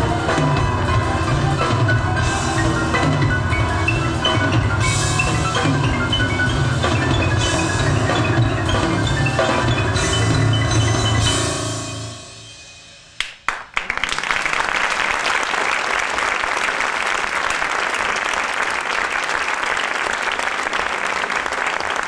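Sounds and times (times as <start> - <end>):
music: 0.0 - 13.8
audience applause: 13.2 - 22.0.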